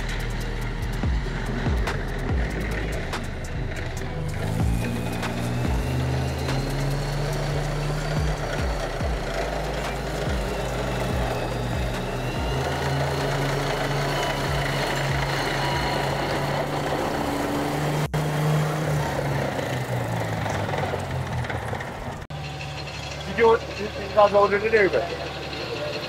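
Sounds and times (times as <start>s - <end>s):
background music: 0.0s - 19.0s
tank engine running: 0.0s - 26.0s.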